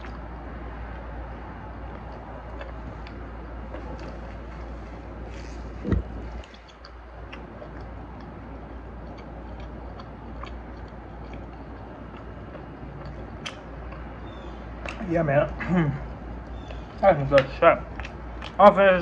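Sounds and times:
man chewing food: 0.0 - 15.0, 15.8 - 17.0, 17.8 - 18.6
steady low hum: 0.0 - 19.0.

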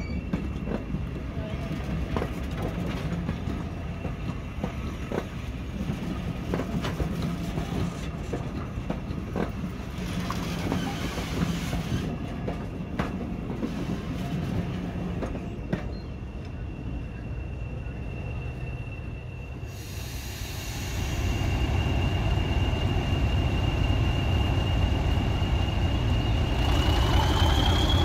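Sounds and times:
train wheels clicking on track: 0.0 - 16.6
diesel train engine drone: 0.0 - 28.0.

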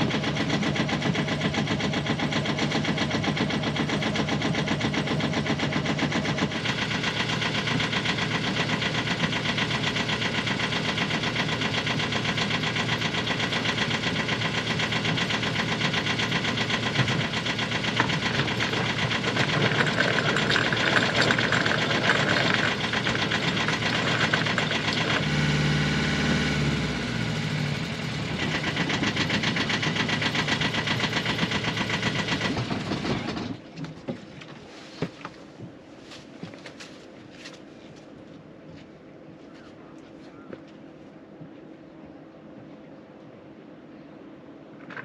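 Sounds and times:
diesel engine clattering: 0.0 - 33.8.

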